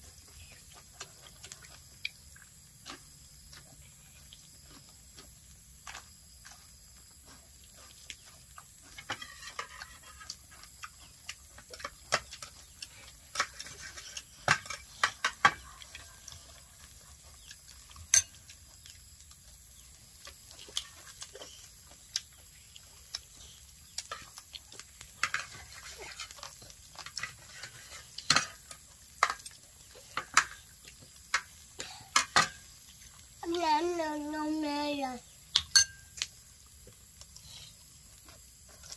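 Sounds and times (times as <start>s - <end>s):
people chewing food: 0.0s - 38.9s
dishes and cutlery clinking: 18.1s - 18.4s, 25.2s - 29.5s, 32.1s - 32.7s, 35.6s - 36.1s.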